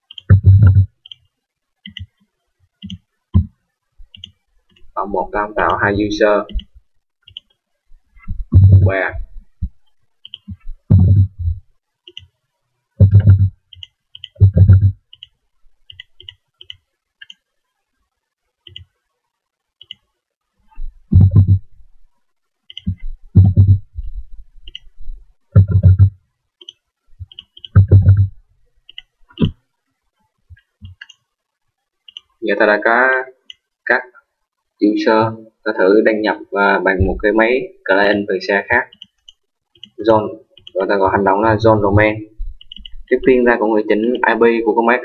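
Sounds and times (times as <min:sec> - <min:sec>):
mouse and keyboard clicks: 0:00.1 - 0:01.3, 0:02.8 - 0:03.5, 0:04.1 - 0:04.9, 0:06.5 - 0:07.6, 0:10.2 - 0:11.4, 0:13.0 - 0:17.5, 0:25.6 - 0:28.3, 0:30.5 - 0:31.3, 0:32.1 - 0:32.4, 0:38.9 - 0:40.0, 0:42.5 - 0:43.1
loud low thumps: 0:00.3 - 0:00.9, 0:08.3 - 0:09.0, 0:10.8 - 0:11.6, 0:13.0 - 0:13.5, 0:14.4 - 0:15.0, 0:21.1 - 0:21.7, 0:23.4 - 0:23.9, 0:25.6 - 0:26.1, 0:27.8 - 0:28.3.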